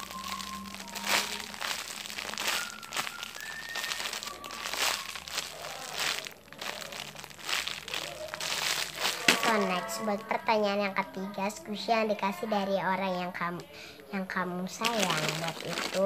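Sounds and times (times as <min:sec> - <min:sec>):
plastic wrapping crinkling: 0:00.0 - 0:10.4, 0:14.7 - 0:16.0.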